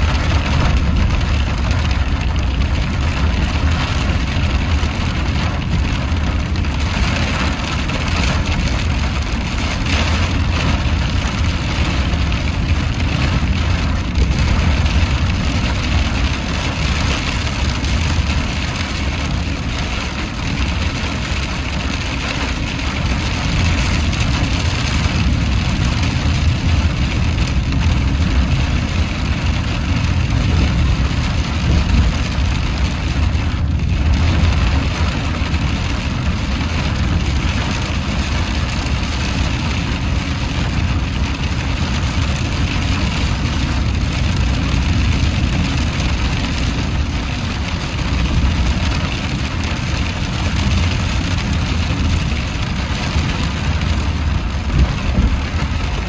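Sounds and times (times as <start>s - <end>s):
engine and tyres rumbling: 0.0s - 56.0s
heavy rain on car roof: 0.0s - 56.0s.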